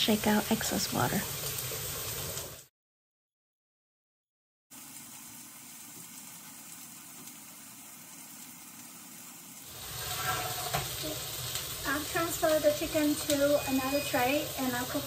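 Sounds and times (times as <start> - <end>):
chicken sizzling: 0.0 - 2.7, 4.7 - 15.0.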